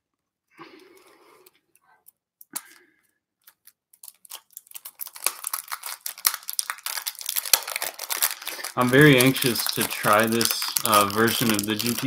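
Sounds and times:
rapid crackling clicks: 0:03.5 - 0:12.0.

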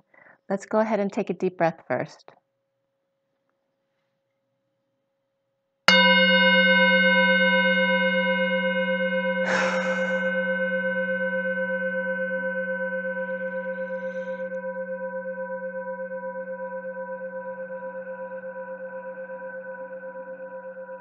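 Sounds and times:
singing bowl ringing: 0:05.9 - 0:21.0.

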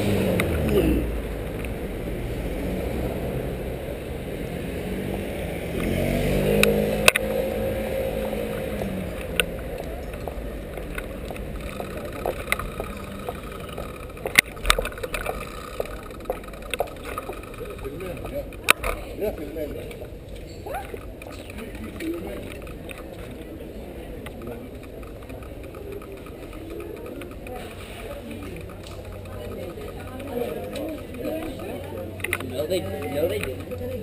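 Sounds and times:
vehicle engine passing: 0:00.0 - 0:19.8
city traffic: 0:00.0 - 0:34.0
wind and road rumble: 0:00.0 - 0:34.0
sharp clicks: 0:09.1 - 0:19.0, 0:20.0 - 0:34.0.

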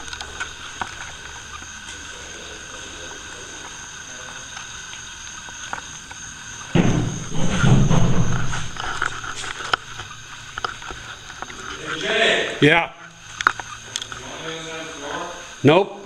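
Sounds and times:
faint hiss with high whine: 0:00.0 - 0:16.0
loud low thump and rumble: 0:06.7 - 0:08.8.

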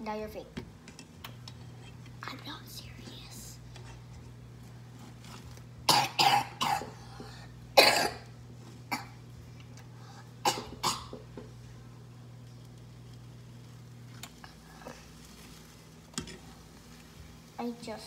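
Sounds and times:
steady low hum: 0:00.0 - 0:18.0
girl coughing: 0:05.9 - 0:07.0, 0:07.8 - 0:08.3, 0:08.9 - 0:09.2, 0:10.4 - 0:11.2.

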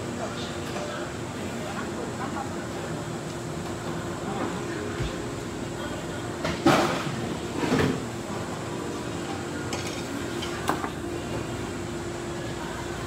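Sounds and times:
steady background hum: 0:00.0 - 0:13.0
tableware clattering: 0:09.7 - 0:10.9.

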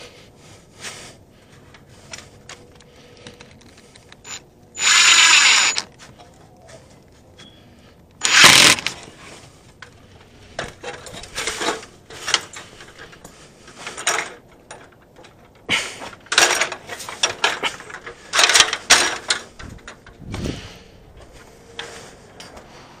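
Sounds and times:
tools and gear clattering: 0:08.2 - 0:20.4.

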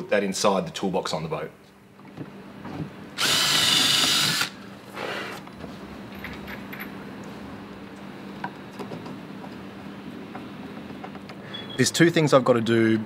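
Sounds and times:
cordless drill into timber: 0:03.2 - 0:05.3.

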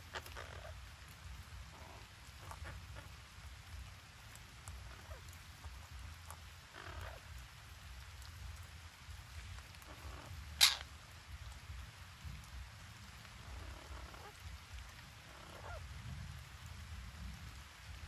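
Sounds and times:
parakeet squawking: 0:00.1 - 0:00.8, 0:01.8 - 0:03.1, 0:06.7 - 0:07.2, 0:09.9 - 0:10.9.

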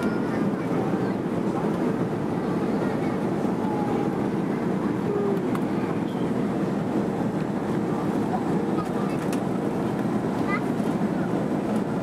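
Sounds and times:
jet engine rumble in cabin: 0:00.0 - 0:12.0.

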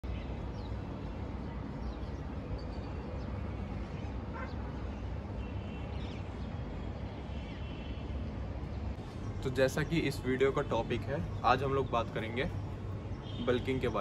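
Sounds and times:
low city rumble: 0:00.0 - 0:14.0
distant animal or bird calls: 0:04.0 - 0:04.9.

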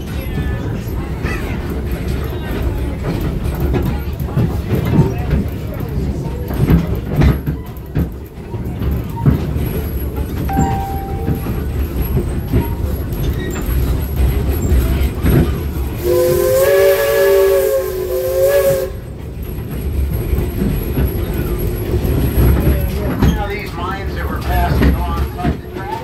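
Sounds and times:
train rumbling along track: 0:00.0 - 0:26.0
steam locomotive whistle: 0:16.0 - 0:19.1.

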